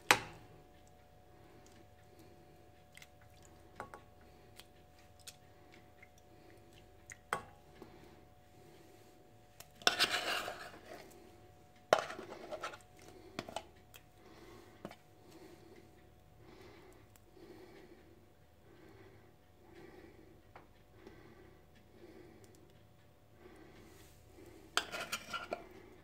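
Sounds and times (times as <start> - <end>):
metal spoon scraping tin can: 9.8 - 11.0, 12.0 - 12.8, 24.8 - 25.6.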